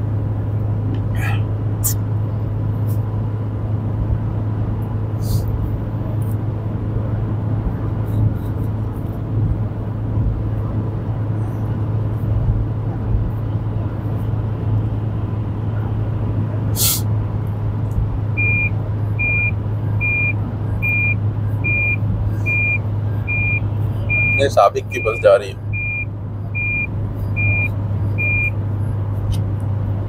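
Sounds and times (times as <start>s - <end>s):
car road and engine drone: 0.0s - 30.0s
short hiss: 16.8s - 17.1s
warning chime beeping: 18.4s - 28.5s.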